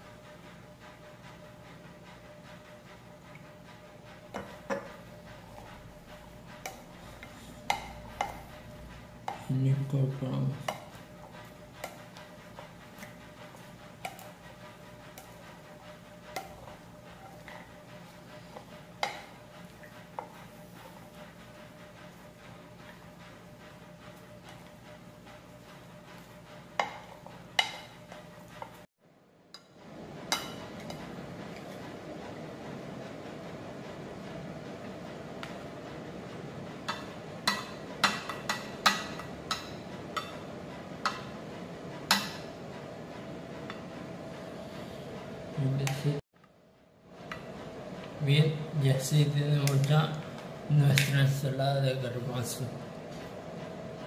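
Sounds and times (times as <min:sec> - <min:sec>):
spatula knocking against bowl: 0:06.6 - 0:08.5.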